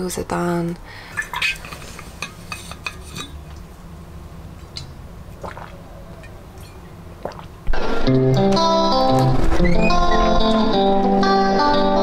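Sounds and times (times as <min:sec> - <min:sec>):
low steady hum: 0:00.0 - 0:08.3.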